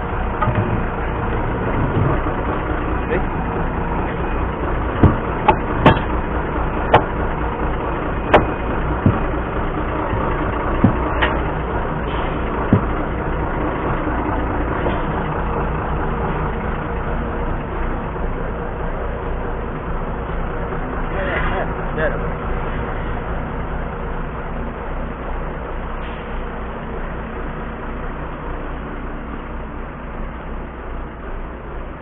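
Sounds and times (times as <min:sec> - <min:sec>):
diesel truck engine idling: 0:00.0 - 0:32.0
knocks and clanks of handled parts: 0:05.0 - 0:06.2, 0:08.3 - 0:09.5, 0:10.1 - 0:11.5.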